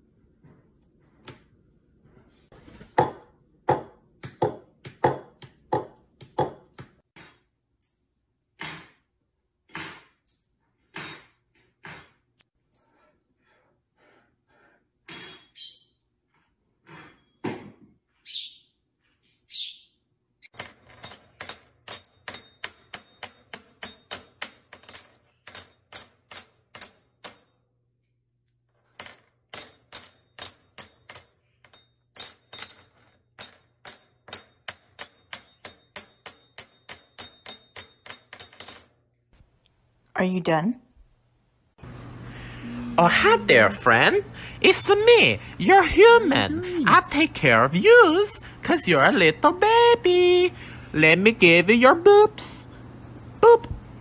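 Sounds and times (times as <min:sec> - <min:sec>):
low hum: 0:41.8 - 0:44.6.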